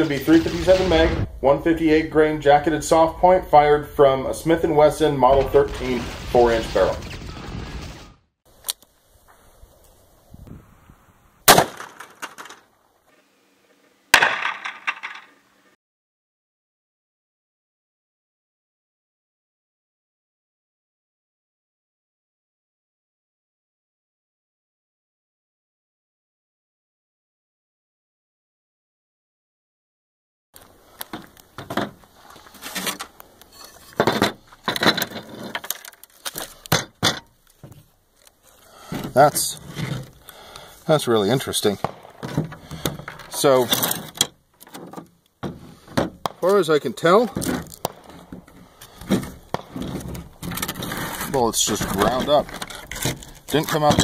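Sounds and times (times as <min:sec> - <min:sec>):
revolver gunshots: 0:11.5 - 0:12.0, 0:41.8 - 0:42.3
tile pieces clinking and scraping: 0:14.4 - 0:15.3.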